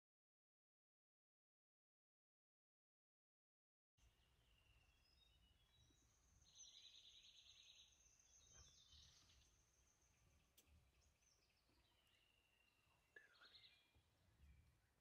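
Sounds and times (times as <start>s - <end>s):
small birds chirping: 4.0s - 15.0s.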